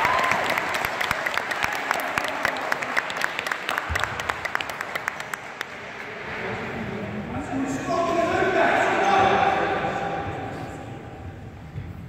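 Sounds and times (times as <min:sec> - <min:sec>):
crowd clapping in echoing hall: 0:00.0 - 0:06.2.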